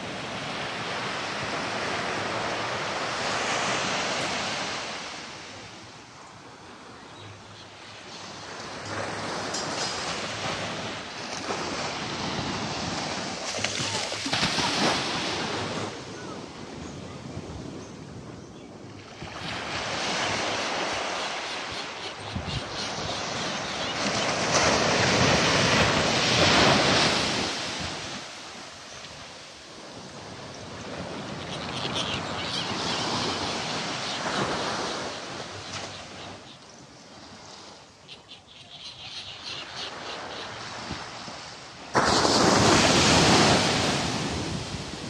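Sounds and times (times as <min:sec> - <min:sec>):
small waves breaking on beach: 0:08.0 - 0:17.8, 0:18.9 - 0:38.0, 0:39.6 - 0:45.0.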